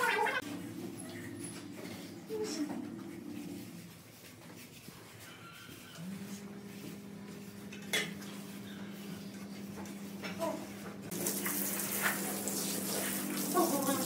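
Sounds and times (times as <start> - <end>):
water spraying from a hose: 11.1 - 14.0.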